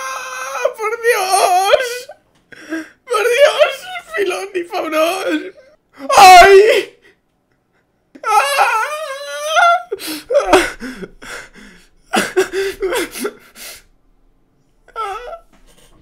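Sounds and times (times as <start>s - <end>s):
man wailing: 0.0s - 2.2s, 3.1s - 7.0s, 8.2s - 11.1s
man sob-laughing: 8.2s - 13.6s.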